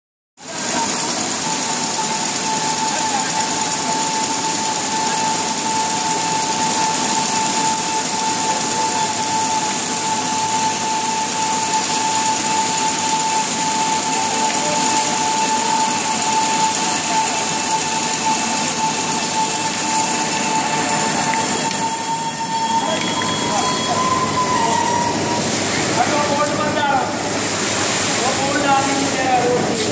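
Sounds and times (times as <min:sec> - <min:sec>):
paper machine whining and hissing: 0:00.4 - 0:29.9.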